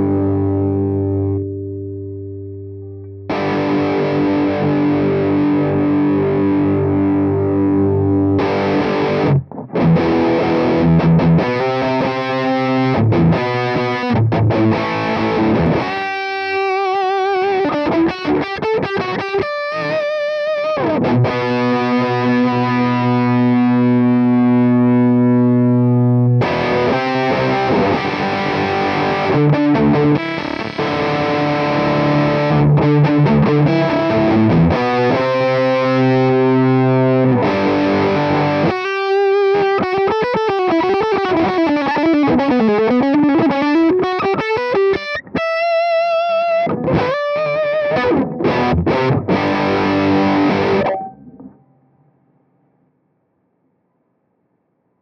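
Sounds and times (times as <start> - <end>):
distorted electric guitar: 0.0 - 53.0.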